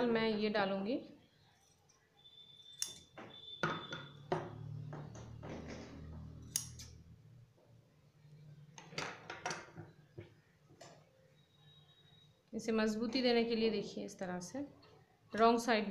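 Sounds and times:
scissors clicking: 6.4s - 7.0s.

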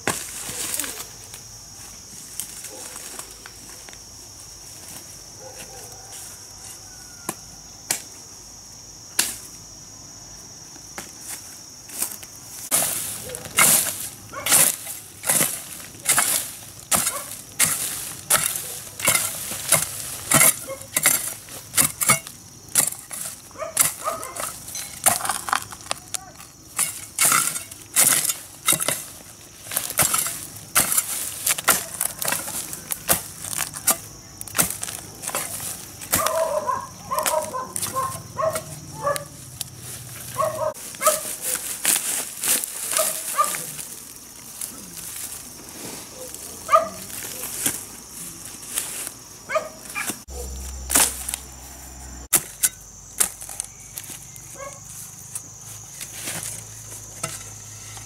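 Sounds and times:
sharp chopping strikes: 50.9s - 51.4s.

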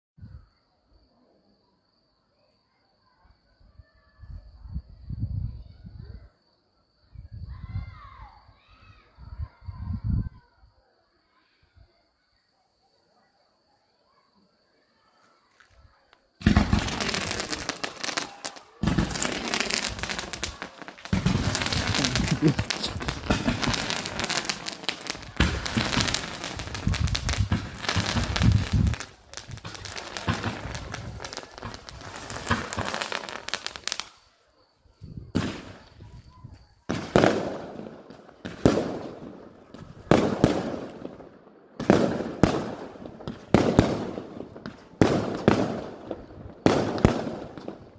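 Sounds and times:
fireworks bangs and crackling: 16.3s - 34.4s, 35.0s - 47.9s
firework shell bursts: 16.4s - 34.2s.

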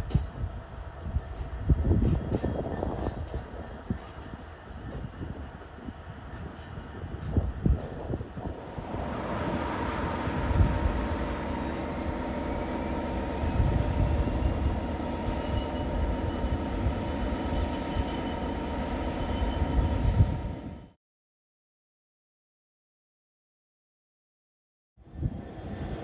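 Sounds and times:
diesel locomotive engines rumbling: 0.0s - 21.0s, 25.1s - 26.0s.

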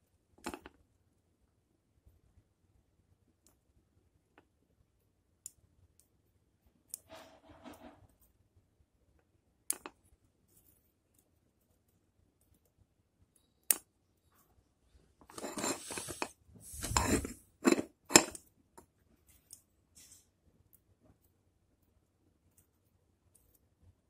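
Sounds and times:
rustling handling: 15.3s - 18.3s.

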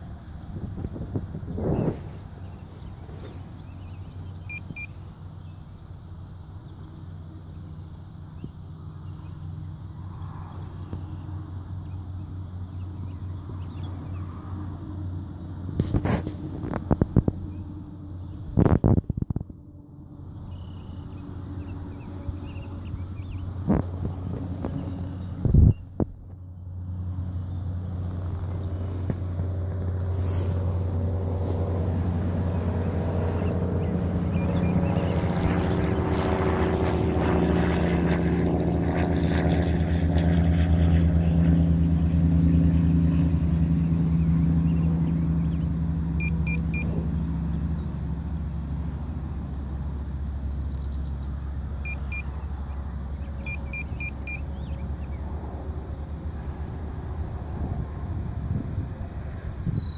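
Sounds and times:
boat motor humming: 2.4s - 10.0s, 19.5s - 38.2s, 46.0s - 49.2s, 51.2s - 56.2s.

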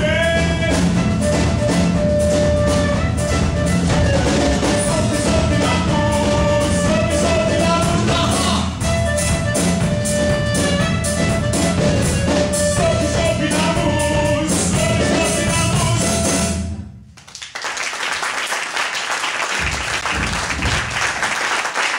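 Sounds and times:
live acoustic band playing: 0.0s - 17.0s
audience applause: 17.2s - 21.9s.

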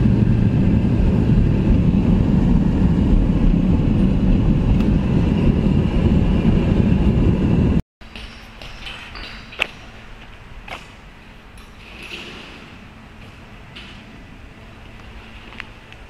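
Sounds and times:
engine and road rumble in car: 0.0s - 7.8s.

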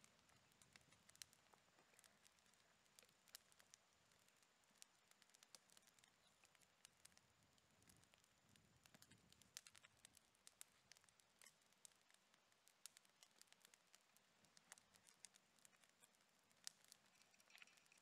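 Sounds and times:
campfire crackling and popping: 0.0s - 18.0s.

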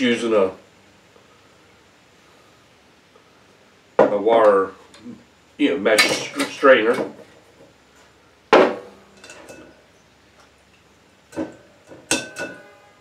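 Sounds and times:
strainer clinking on bowl: 12.1s - 12.8s.

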